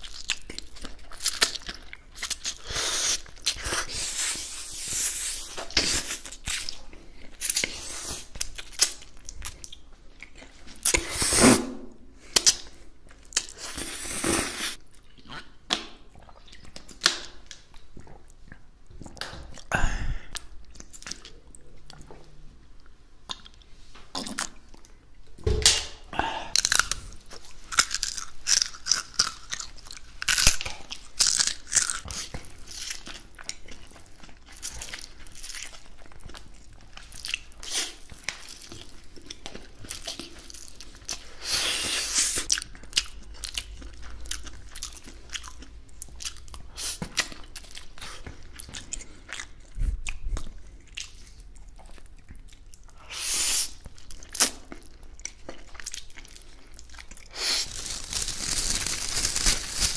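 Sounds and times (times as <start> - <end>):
crunchy bites and chewing: 26.4 - 41.5, 53.6 - 59.9.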